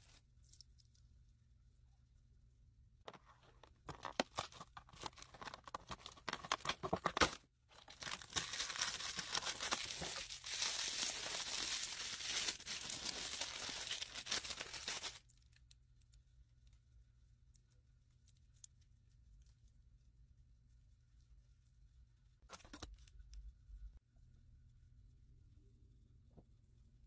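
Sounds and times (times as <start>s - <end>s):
cardboard packaging tearing: 3.1s - 15.2s
paper wrapping crinkling: 3.1s - 15.3s.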